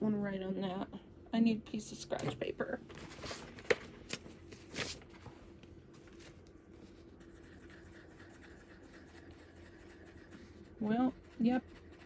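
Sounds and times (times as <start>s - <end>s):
marker scribbling on paper: 7.2s - 12.0s.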